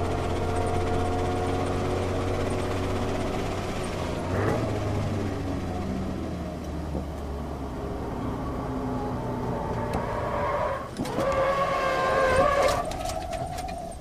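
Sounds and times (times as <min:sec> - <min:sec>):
car engine slowing: 0:00.0 - 0:14.0
tyres squealing: 0:09.7 - 0:14.0.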